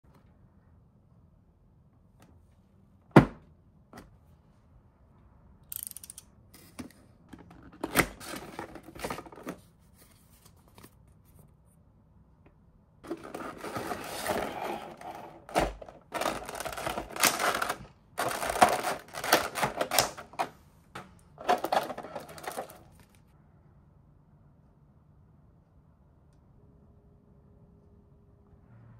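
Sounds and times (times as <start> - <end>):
plastic packaging crinkling: 13.0 - 23.3.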